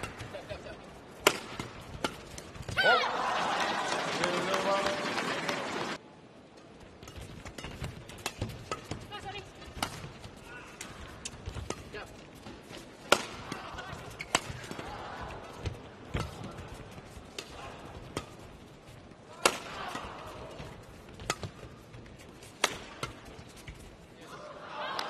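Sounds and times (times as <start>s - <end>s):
badminton rackets hitting shuttlecock: 0.0s - 3.0s, 7.0s - 23.9s.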